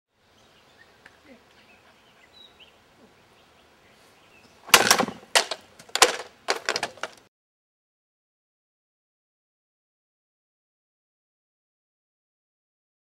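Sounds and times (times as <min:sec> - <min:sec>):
faint birdsong: 0:00.1 - 0:05.8
sword chopping through bamboo: 0:04.7 - 0:07.2.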